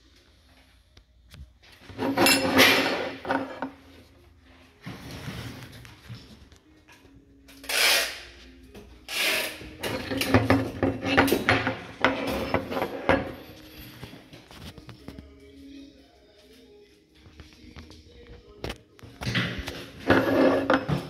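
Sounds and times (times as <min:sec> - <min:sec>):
metal parts scraping: 0:01.9 - 0:03.7.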